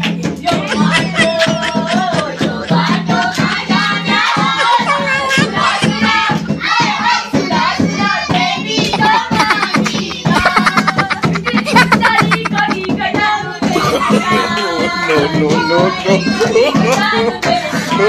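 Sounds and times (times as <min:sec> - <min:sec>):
hands clapping: 0:00.0 - 0:06.8, 0:08.3 - 0:12.9, 0:16.4 - 0:18.0
barrel drum beat: 0:00.0 - 0:18.0
voices singing folk song: 0:00.0 - 0:18.0.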